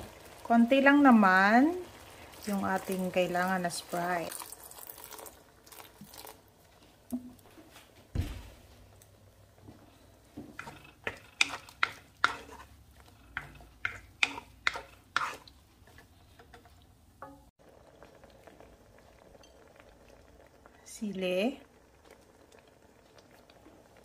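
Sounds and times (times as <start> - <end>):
wooden spoon scraping wok: 9.7 - 17.5.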